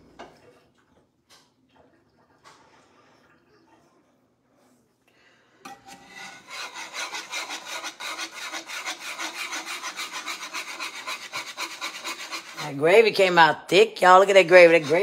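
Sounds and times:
utensil scraping pan bottom: 0:05.7 - 0:12.9, 0:14.1 - 0:15.0.

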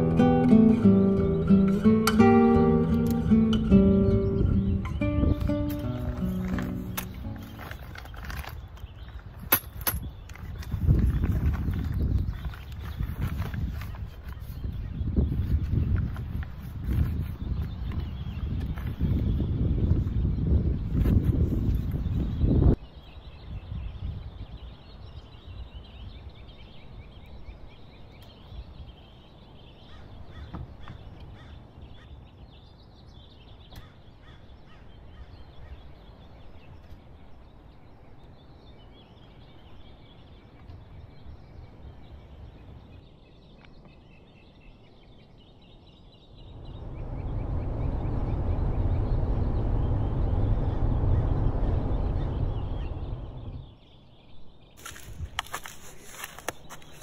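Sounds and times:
faint birds chirping: 0:00.0 - 0:57.0
minivan driving from inside cabin: 0:46.5 - 0:53.8.

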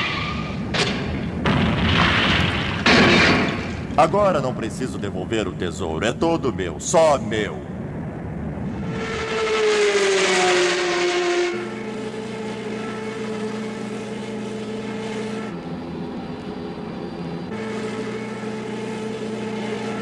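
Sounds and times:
cartoon engine drone: 0:04.1 - 0:20.0
cartoon car passing: 0:08.6 - 0:15.5.

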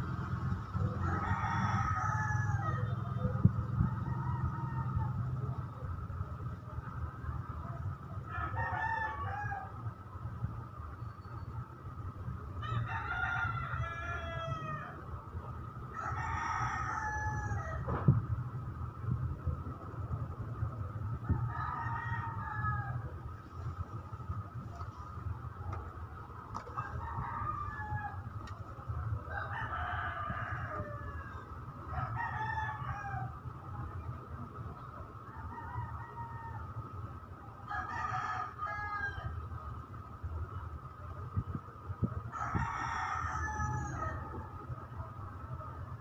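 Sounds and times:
low steady rumble: 0:00.0 - 0:46.0
rooster crowing: 0:00.9 - 0:03.1, 0:12.6 - 0:15.0, 0:15.9 - 0:17.9, 0:21.3 - 0:23.1, 0:26.6 - 0:28.4, 0:29.3 - 0:33.4, 0:37.7 - 0:39.4, 0:42.3 - 0:44.3.

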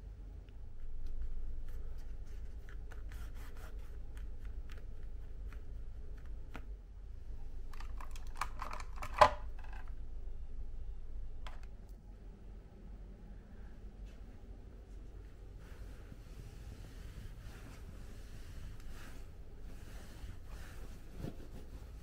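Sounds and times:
low steady room hum: 0:00.0 - 0:22.0
handling clicks and rubbing: 0:07.6 - 0:09.9
phone handset plastic clatter: 0:07.7 - 0:09.9.

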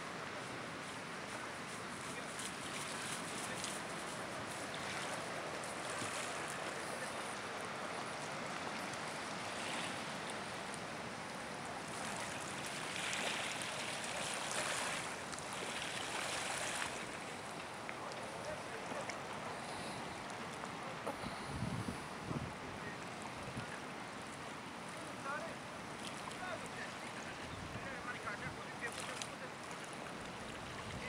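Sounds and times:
water lapping on a pebble shore: 0:11.8 - 0:20.0, 0:28.8 - 0:31.0.

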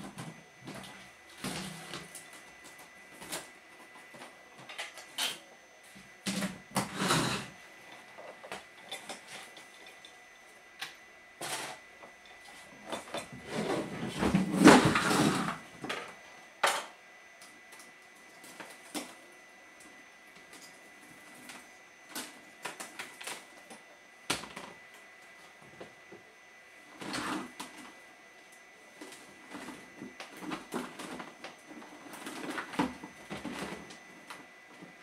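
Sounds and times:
rummaging through boxes and parts: 0:11.4 - 0:16.0.

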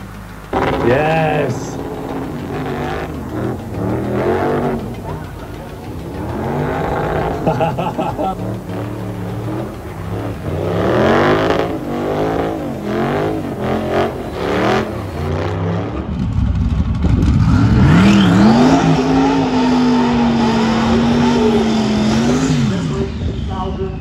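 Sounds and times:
tyres spinning: 0:00.0 - 0:15.6
car engine revving: 0:00.0 - 0:24.0
engine at high revs: 0:00.0 - 0:24.0.

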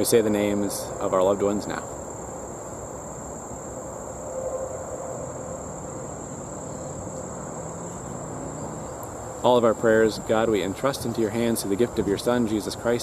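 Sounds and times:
crickets trilling: 0:00.0 - 0:13.0
low outdoor rumble: 0:00.0 - 0:13.0.

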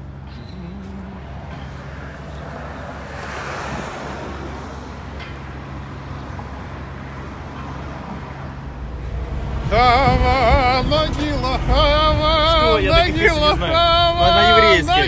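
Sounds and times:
engine humming: 0:00.0 - 0:15.0
wind noise on microphone: 0:03.1 - 0:05.6, 0:08.8 - 0:15.0.

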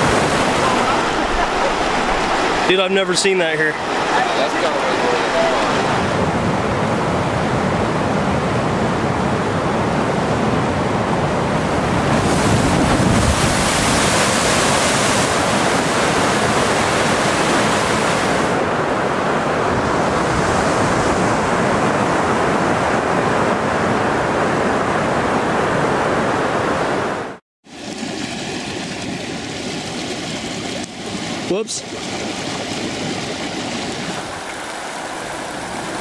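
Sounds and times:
flood water rushing: 0:00.0 - 0:06.4, 0:11.8 - 0:18.8, 0:27.7 - 0:36.0.

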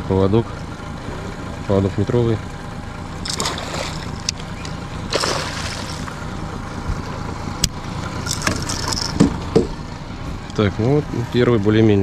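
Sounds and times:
fish splashing at surface: 0:03.2 - 0:06.2.

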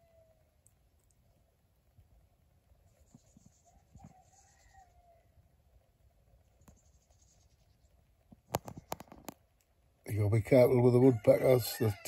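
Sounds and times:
distant rooster crowing: 0:03.5 - 0:05.4, 0:10.9 - 0:12.0.

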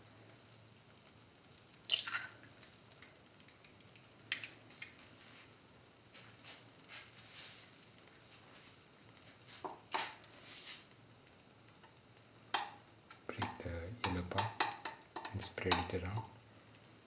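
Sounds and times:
egg frying crackles and pops: 0:00.0 - 0:17.0.

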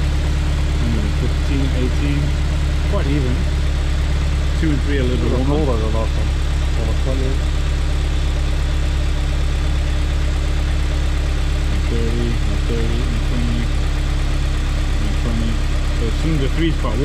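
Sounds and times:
car engine idling: 0:00.0 - 0:17.0
faint voices: 0:00.8 - 0:02.3, 0:02.9 - 0:03.5, 0:04.6 - 0:07.4, 0:11.7 - 0:13.7, 0:15.0 - 0:17.0.

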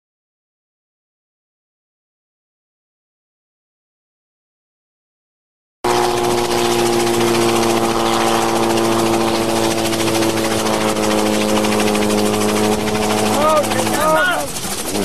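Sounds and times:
helicopter engine whine: 0:05.9 - 0:15.0.

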